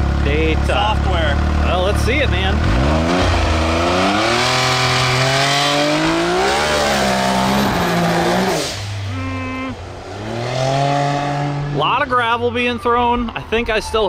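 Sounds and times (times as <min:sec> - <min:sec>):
engine revving at full throttle: 0:00.0 - 0:09.0, 0:09.6 - 0:11.8.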